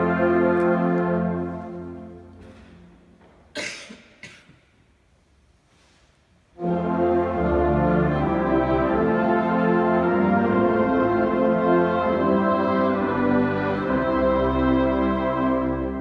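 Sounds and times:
wind band holding a chord: 0:00.0 - 0:02.5, 0:06.6 - 0:16.0.

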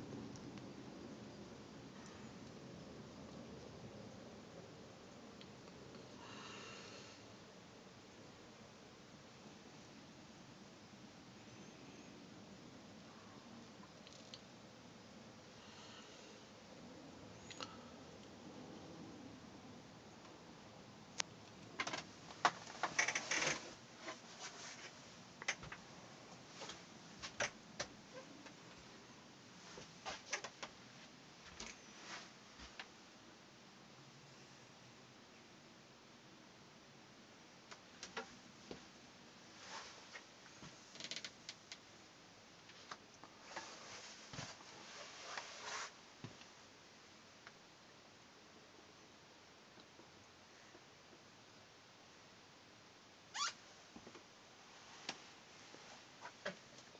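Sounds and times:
handling clicks and rustles: 0:21.2 - 0:28.8.

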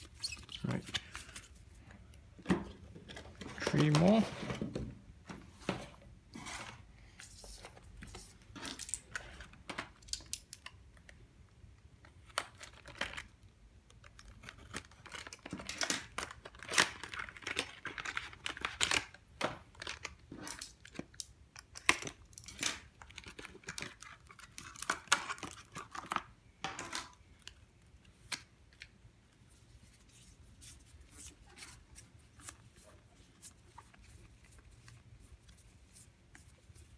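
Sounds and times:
cards clicking and rustling: 0:03.1 - 0:04.2
packaging crinkling and tearing: 0:14.0 - 0:26.3.

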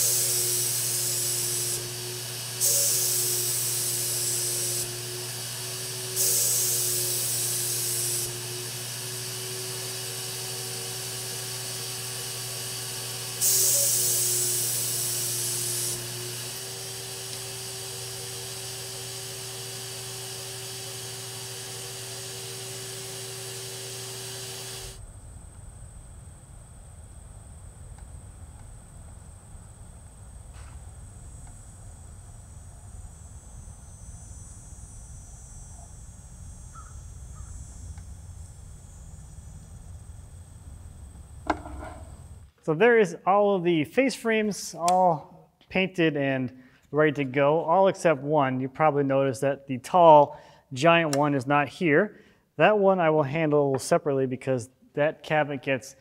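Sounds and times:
spray gun hissing: 0:00.0 - 0:25.0
paint sprayer turbine whine: 0:00.0 - 0:45.4.

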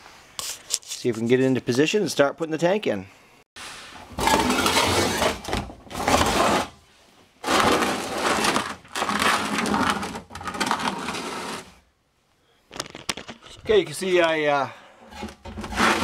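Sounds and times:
fuel tank scraping on concrete: 0:07.4 - 0:11.8, 0:15.0 - 0:16.0.

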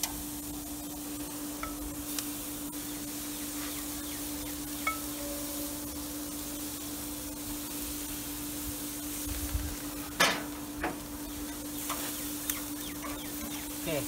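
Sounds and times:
metal tongs clacking on grill: 0:00.0 - 0:00.2, 0:01.6 - 0:02.3, 0:04.8 - 0:05.4, 0:10.2 - 0:11.1, 0:11.8 - 0:13.6
chicken wings sizzling on grill: 0:00.0 - 0:14.0.

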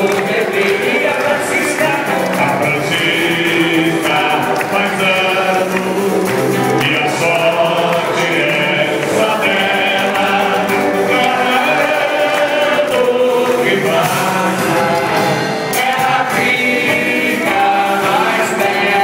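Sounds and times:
group singing: 0:00.0 - 0:19.0
hand-clapping: 0:00.0 - 0:19.0
small band playing: 0:00.0 - 0:19.0.

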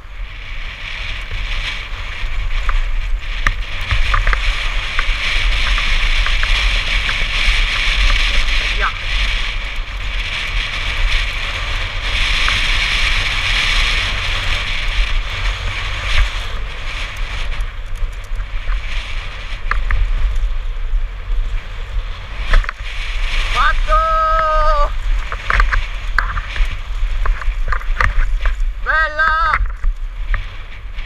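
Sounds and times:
tyres rolling on gravel trail: 0:00.0 - 0:31.0
wind buffeting microphone: 0:00.0 - 0:31.0.

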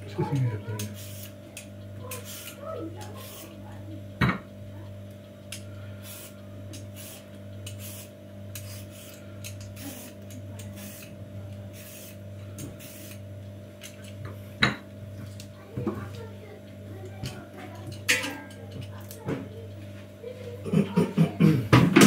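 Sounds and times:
steady low hum: 0:00.0 - 0:22.0
peeler scraping cucumber skin: 0:02.1 - 0:03.6, 0:06.1 - 0:13.2.

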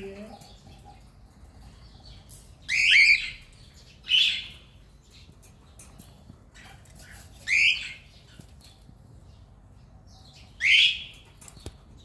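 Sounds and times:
cockatiels calling harshly: 0:02.7 - 0:04.7, 0:06.5 - 0:08.5, 0:10.4 - 0:11.2.

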